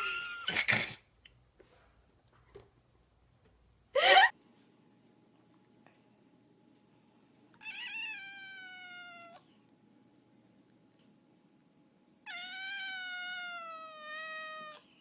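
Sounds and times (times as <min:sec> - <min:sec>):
cat meowing: 0:07.6 - 0:09.4, 0:12.3 - 0:14.9.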